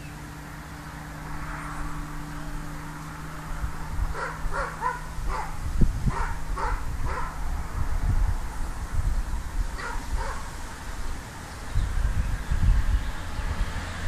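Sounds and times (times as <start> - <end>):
wind rumbling on microphone: 1.8 - 14.0
dog barking: 4.1 - 7.4, 9.8 - 10.5.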